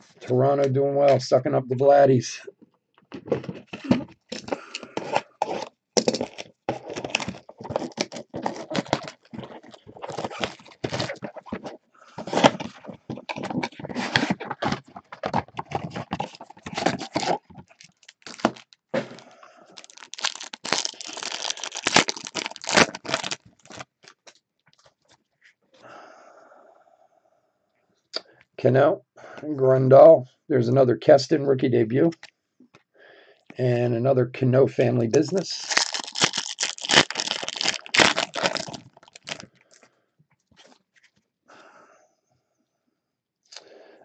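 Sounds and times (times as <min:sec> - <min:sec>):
cardboard and foil wrapper tearing: 0:03.7 - 0:19.2, 0:19.8 - 0:24.3, 0:35.6 - 0:39.5.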